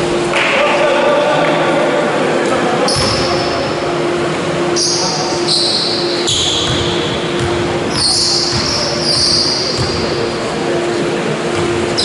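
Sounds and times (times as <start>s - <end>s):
steady hum: 0.0s - 12.0s
basketball bouncing on hall floor: 2.9s - 3.5s, 5.9s - 10.5s, 11.5s - 12.0s.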